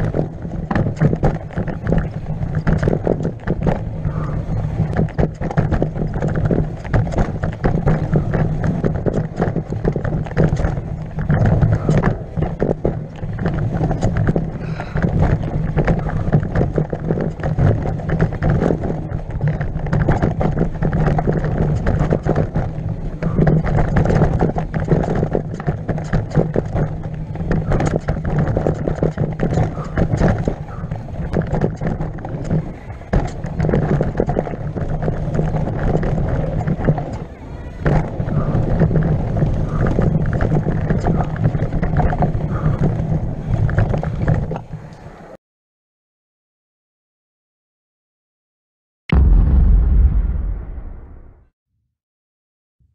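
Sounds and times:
bike rattling and knocking: 0.0s - 45.0s
tyres rumbling over dirt: 0.0s - 45.3s.

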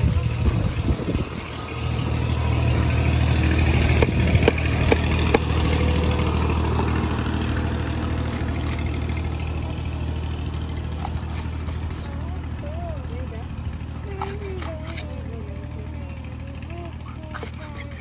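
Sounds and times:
knife scraping fish scales: 0.0s - 1.8s, 4.0s - 6.3s, 7.9s - 9.5s, 11.0s - 12.2s, 13.9s - 15.3s, 17.0s - 18.0s
engine idling hum: 0.0s - 18.0s.

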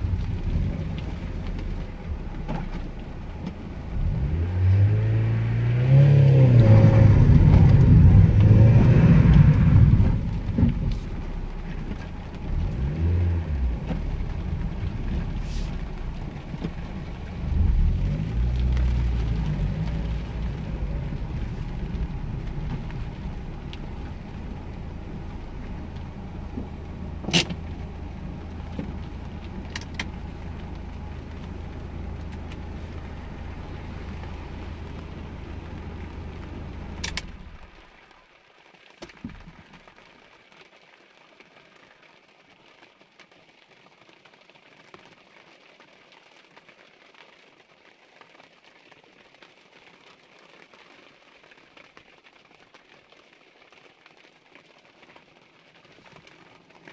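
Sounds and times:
car engine idling: 0.0s - 38.2s
rain pattering on car roof: 0.0s - 56.9s.

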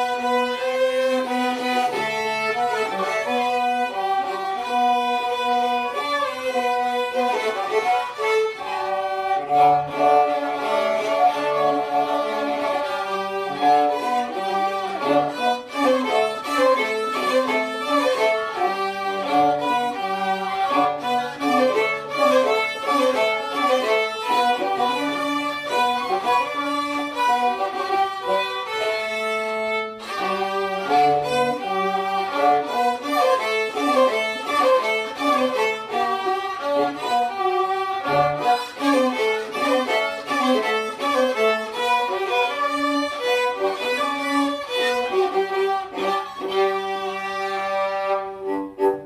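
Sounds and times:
string trio playing: 0.0s - 49.0s.

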